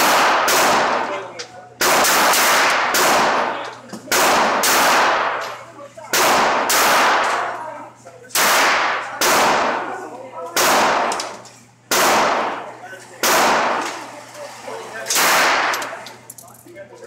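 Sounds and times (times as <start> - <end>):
pistol shots echoing indoors: 0.0 - 1.2, 1.8 - 7.6, 8.3 - 9.9, 10.5 - 12.6, 13.2 - 14.0, 15.1 - 16.0.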